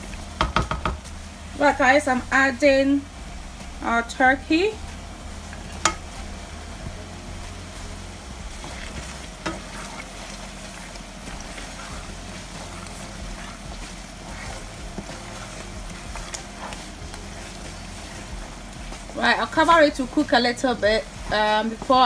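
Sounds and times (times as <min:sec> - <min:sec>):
stew cooking: 0:00.0 - 0:22.0
spoon stirring stew: 0:05.4 - 0:22.0.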